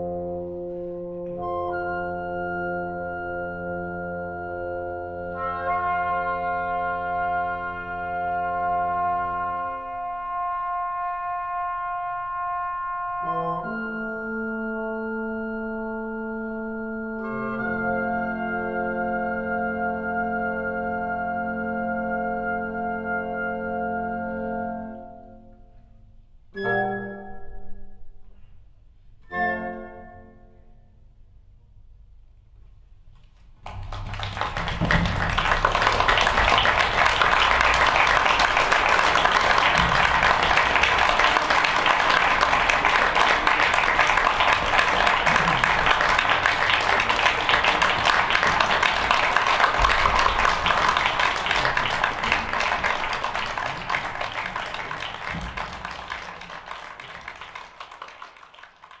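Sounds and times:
music: 0.0 - 59.0
audience applauding: 33.6 - 59.0.

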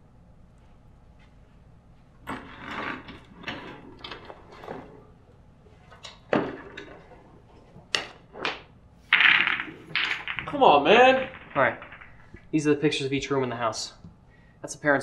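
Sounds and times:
knocks and rustling: 2.2 - 12.8.

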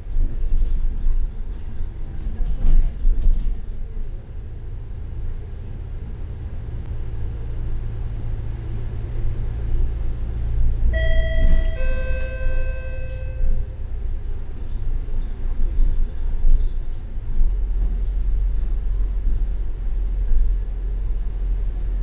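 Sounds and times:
bus engine rumble: 0.0 - 22.0
two-note falling chime: 11.0 - 13.7.

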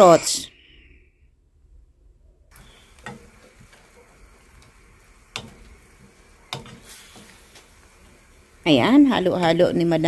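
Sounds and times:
wooden spatula stirring food: 2.6 - 9.6
food sizzling in a wok: 2.6 - 10.0
spatula knocking against pan: 3.0 - 4.0, 5.3 - 7.7.

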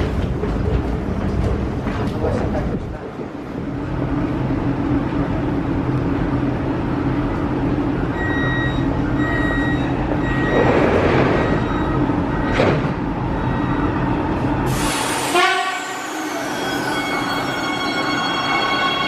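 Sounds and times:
train equipment humming: 0.0 - 19.0
high door warning beeps: 8.1 - 14.0.

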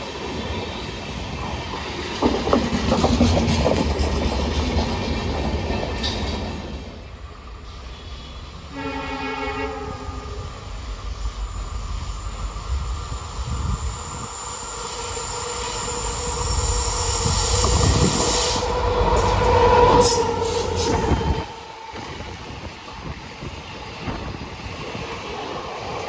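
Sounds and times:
train rumbling past: 0.0 - 26.0
train wheel squeal: 7.6 - 24.2.

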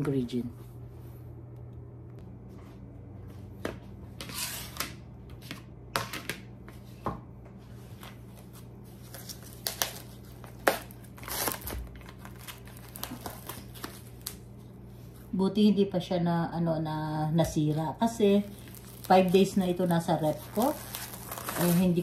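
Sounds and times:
low steady hum: 0.0 - 22.0
plastic bag crinkling: 9.1 - 14.4, 18.1 - 22.0.

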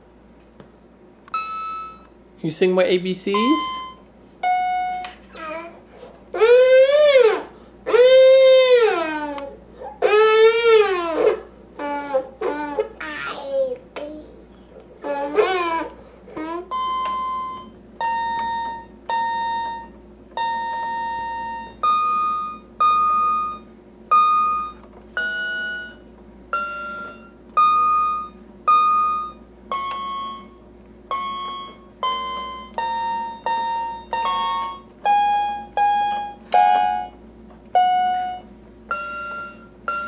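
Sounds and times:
toy keyboard beeping notes: 16.7 - 37.1, 37.8 - 40.0.

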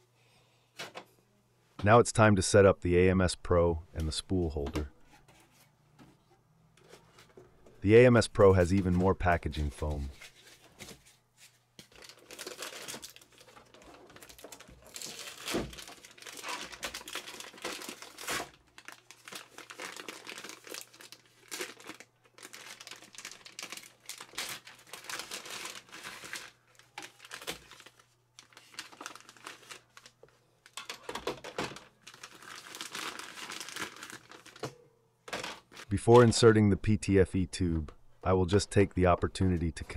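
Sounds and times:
plastic bags crinkling: 11.8 - 35.9.

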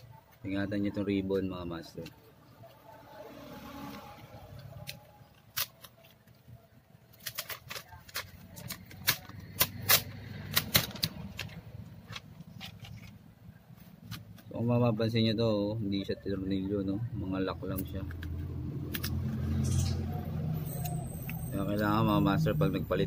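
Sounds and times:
plastic keyboard clicks and crackles: 4.8 - 6.4, 7.1 - 13.1.

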